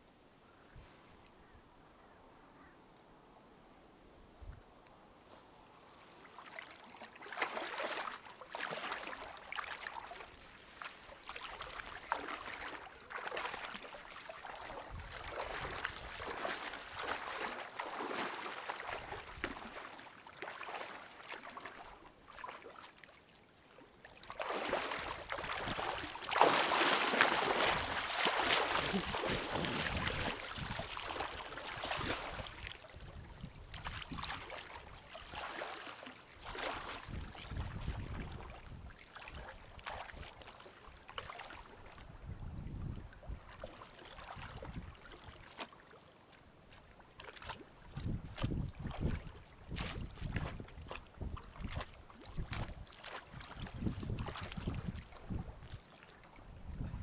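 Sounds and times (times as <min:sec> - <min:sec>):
water sloshing and splashing: 0:05.8 - 0:56.4.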